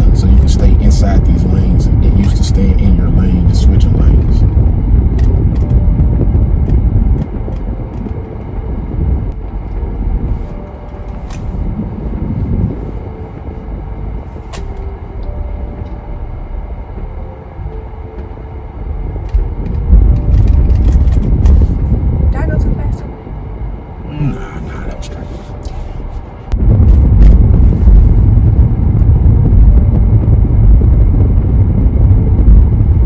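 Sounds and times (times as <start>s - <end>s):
car engine and road rumble: 0.0s - 33.0s.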